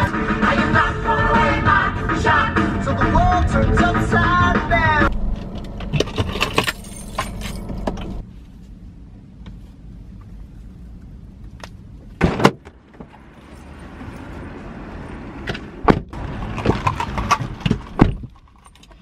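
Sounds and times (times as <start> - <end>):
car engine running: 0.0 - 8.6.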